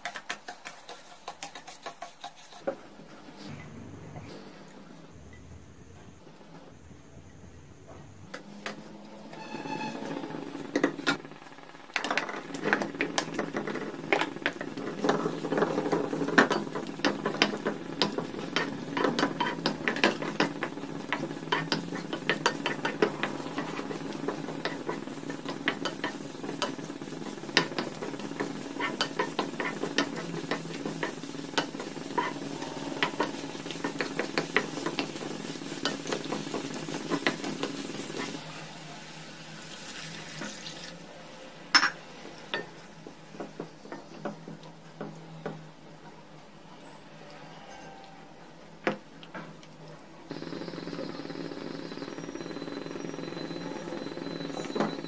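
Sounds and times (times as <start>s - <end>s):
spatula tapping and scraping pan: 0.0s - 2.8s, 12.0s - 38.4s
banana slices sizzling in pan: 8.5s - 44.9s.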